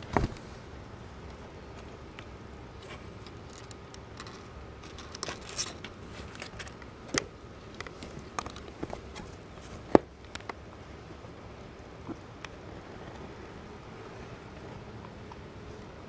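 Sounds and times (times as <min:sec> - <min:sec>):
kittens rustling and clicking: 0:01.3 - 0:10.6.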